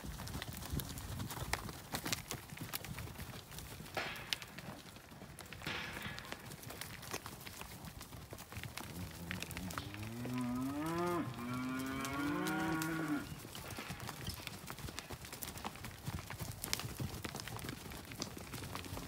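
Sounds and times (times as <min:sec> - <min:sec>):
hooves on dry dirt: 0:00.0 - 0:19.0
steer mooing: 0:08.8 - 0:14.1.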